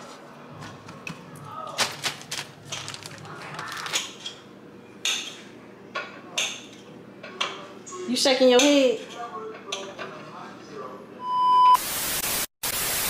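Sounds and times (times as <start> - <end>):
clicks and knocks of kitchen items: 0.6 - 4.4.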